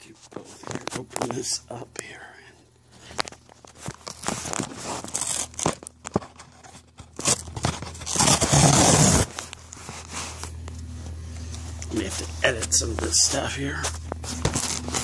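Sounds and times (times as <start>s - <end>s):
cardboard tearing: 3.7s - 10.3s, 14.2s - 15.0s
cardboard box scraping and crackling: 4.0s - 10.4s, 14.2s - 15.0s.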